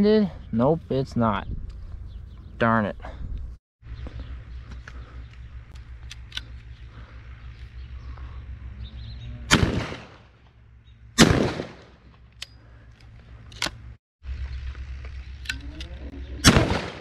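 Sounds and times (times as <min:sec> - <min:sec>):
shotgun shots: 0:09.5 - 0:10.4, 0:11.2 - 0:12.1, 0:16.4 - 0:17.0.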